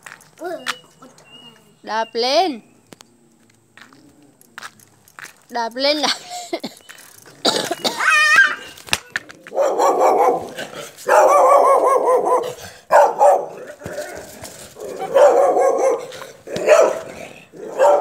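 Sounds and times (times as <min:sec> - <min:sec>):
dog yapping: 0:09.5 - 0:18.0.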